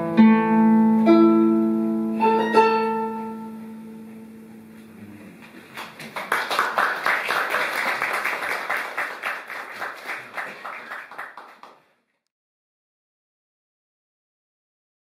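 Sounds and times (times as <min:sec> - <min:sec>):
audience applause: 0:05.6 - 0:11.9.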